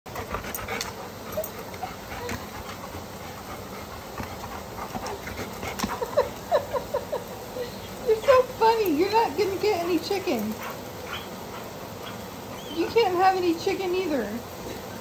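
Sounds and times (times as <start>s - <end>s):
dog whining: 1.2s - 2.7s, 11.1s - 11.4s, 12.0s - 13.1s.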